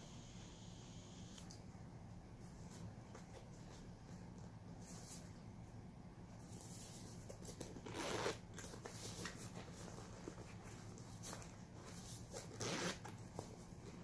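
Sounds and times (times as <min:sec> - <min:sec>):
zipper pulled open: 0:07.8 - 0:08.7, 0:12.4 - 0:13.2.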